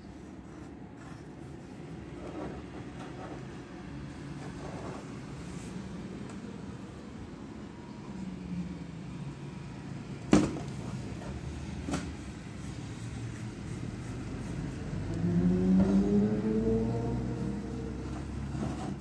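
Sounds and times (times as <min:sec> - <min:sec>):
vehicle engine passing by: 0:12.6 - 0:19.0.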